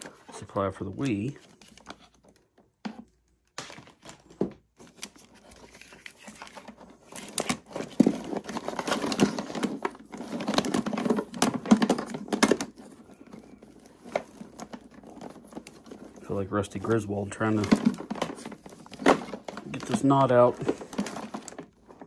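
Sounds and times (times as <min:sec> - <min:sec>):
cables rustling in plastic tote: 0:00.0 - 0:22.0.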